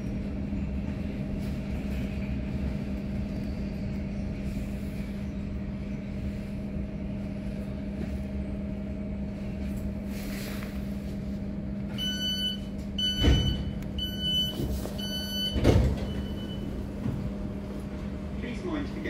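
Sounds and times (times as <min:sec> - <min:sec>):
train door warning beeps: 0:11.9 - 0:17.2.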